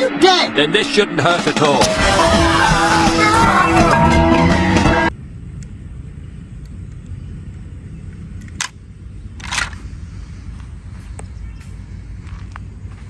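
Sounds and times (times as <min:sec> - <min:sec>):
film soundtrack music: 0:00.0 - 0:05.1
voices: 0:00.0 - 0:05.1.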